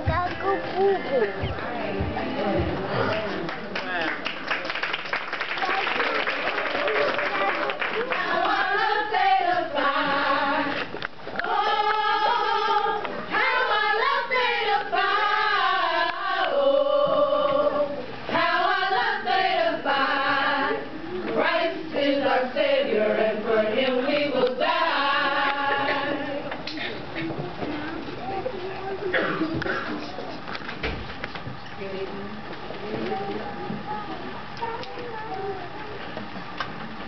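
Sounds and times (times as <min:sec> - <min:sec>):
women singing unaccompanied: 0:07.9 - 0:26.6.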